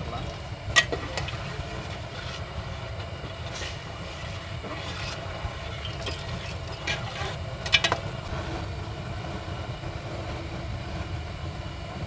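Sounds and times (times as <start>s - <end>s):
metal ladle scraping a pot: 0.7s - 8.2s.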